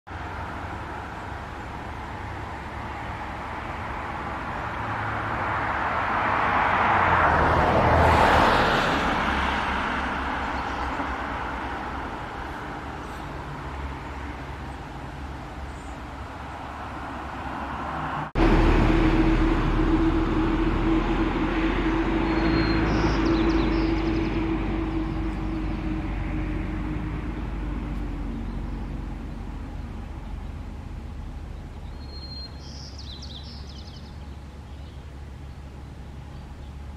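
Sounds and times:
vehicle passing: 0:00.2 - 0:36.9
steady low rumble: 0:18.2 - 0:32.5.

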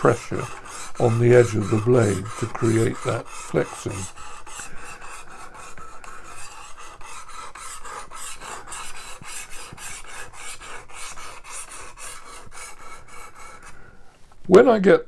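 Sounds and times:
knife sharpener scraping: 0:00.0 - 0:10.0.

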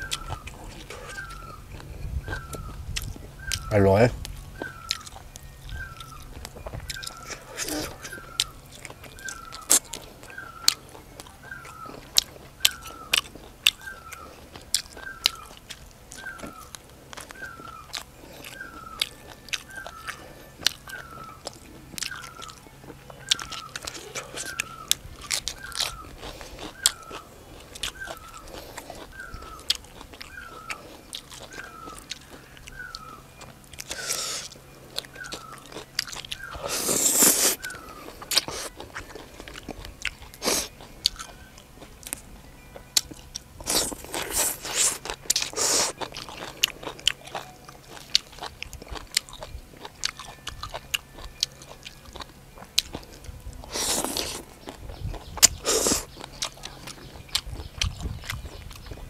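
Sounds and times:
crunching bites and chewing: 0:00.0 - 0:59.0
slurping noodles: 0:33.8 - 0:34.5, 0:36.4 - 0:38.8, 0:43.6 - 0:46.0, 0:53.7 - 0:54.5, 0:55.5 - 0:56.1.

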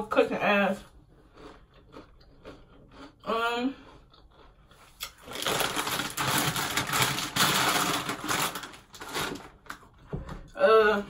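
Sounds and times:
plastic wrapper crinkling: 0:05.0 - 0:10.0.

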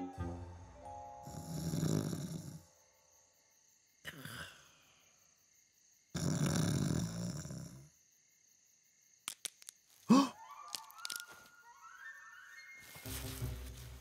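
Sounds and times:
man snoring: 0:01.2 - 0:02.7, 0:06.1 - 0:07.9.

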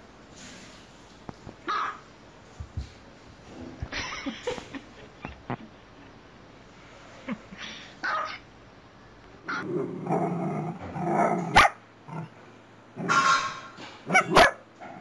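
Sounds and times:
small dogs barking: 0:01.6 - 0:02.0, 0:08.0 - 0:08.4, 0:09.5 - 0:12.3, 0:13.0 - 0:15.0.

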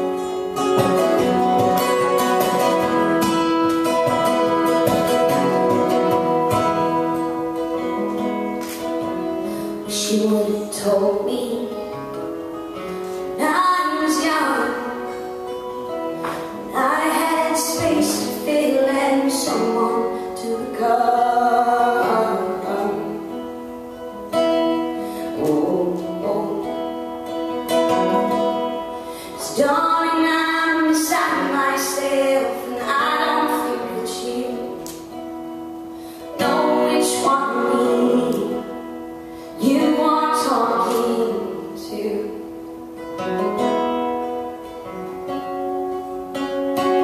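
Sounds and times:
acoustic guitar: 0:00.0 - 0:47.0
woman singing: 0:09.7 - 0:12.3, 0:13.2 - 0:15.6, 0:16.2 - 0:23.6, 0:24.7 - 0:35.3, 0:36.2 - 0:43.4.

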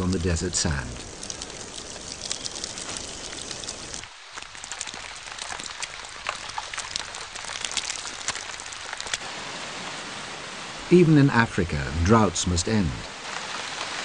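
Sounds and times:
raindrops ticking: 0:00.0 - 0:09.3
rain falling: 0:00.0 - 0:14.0.

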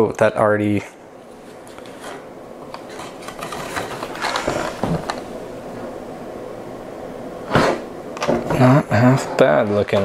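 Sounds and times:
steady hiss: 0:00.0 - 0:10.0
cardboard rustling: 0:01.3 - 0:05.3.

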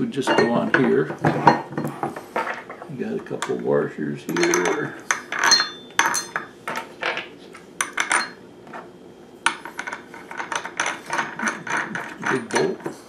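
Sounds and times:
metal washers clinking: 0:00.2 - 0:01.9, 0:04.3 - 0:08.4.

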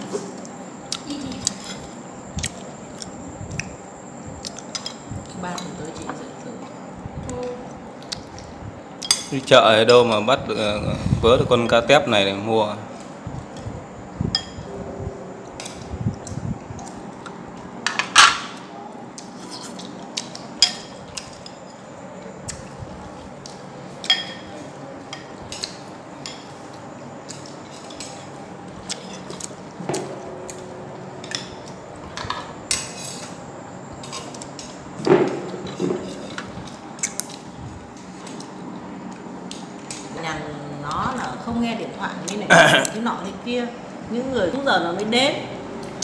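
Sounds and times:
cutlery clinking on bowls: 0:24.0 - 0:26.5.

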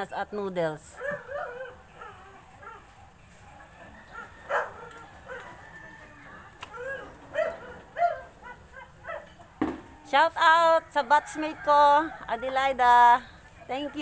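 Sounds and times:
dog barking: 0:01.0 - 0:02.9, 0:04.0 - 0:05.6, 0:06.8 - 0:09.4.

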